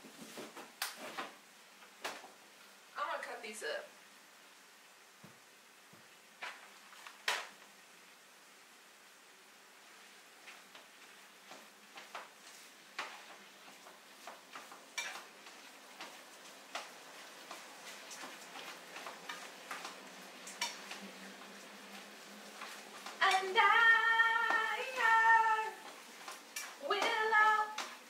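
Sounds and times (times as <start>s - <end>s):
utensil scraping frying pan: 11.5s - 23.7s.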